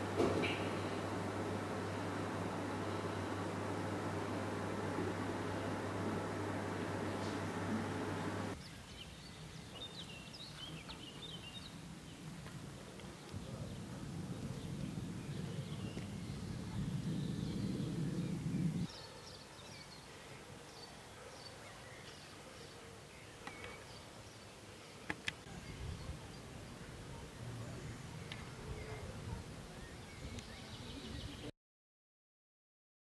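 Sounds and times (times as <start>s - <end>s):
low steady rumble: 0.0s - 8.6s, 13.3s - 18.9s
small birds chirping: 0.0s - 12.3s, 13.1s - 31.5s.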